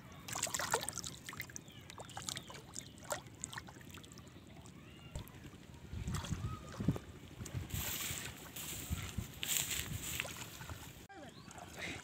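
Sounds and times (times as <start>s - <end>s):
shallow water splashing: 0.3s - 8.9s.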